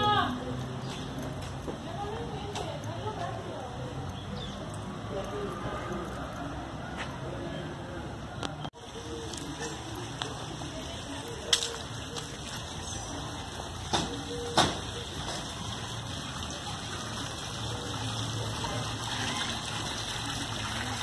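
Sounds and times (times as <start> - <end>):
fountain water splashing: 8.8 - 21.0.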